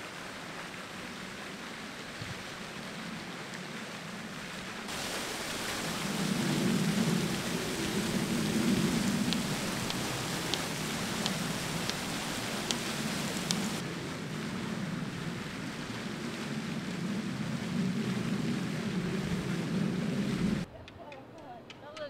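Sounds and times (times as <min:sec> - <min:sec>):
fountain water splashing: 0:00.0 - 0:20.7
faint sharp ticks: 0:07.2 - 0:13.8.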